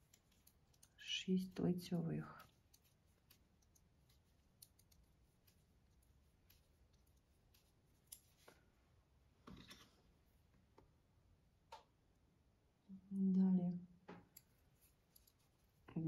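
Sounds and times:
knitting needles clicking: 0:00.0 - 0:08.6, 0:14.2 - 0:15.6.

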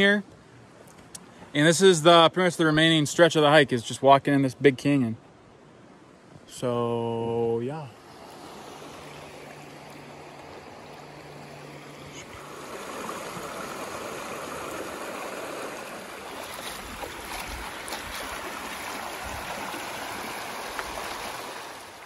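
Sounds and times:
water rushing over rocks: 0:08.0 - 0:22.0.

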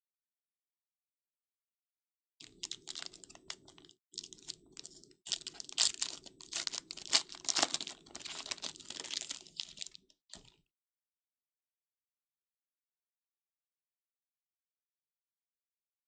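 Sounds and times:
foil wrapper crinkling and tearing: 0:02.4 - 0:10.5.

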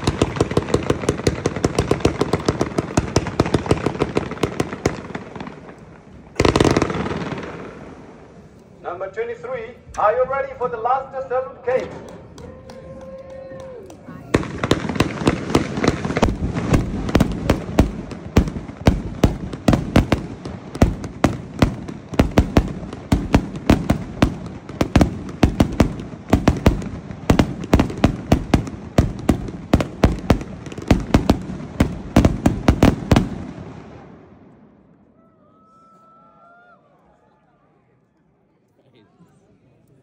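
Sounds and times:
firework cake bangs: 0:14.3 - 0:33.5.

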